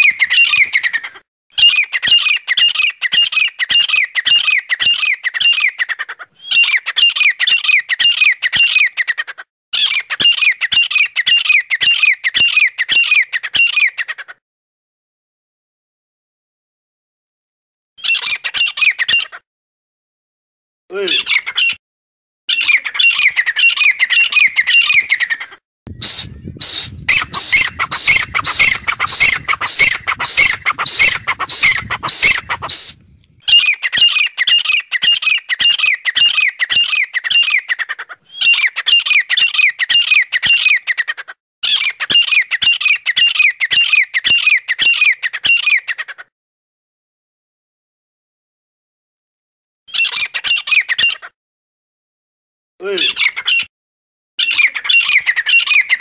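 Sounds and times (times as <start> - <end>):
bird calling rapid high notes: 22.5 - 45.8.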